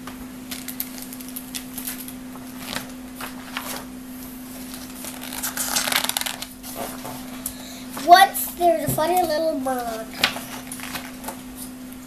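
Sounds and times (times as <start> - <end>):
steady low hum: 0.0 - 12.0
book page rustling: 0.6 - 3.9, 4.5 - 7.2, 9.0 - 11.7.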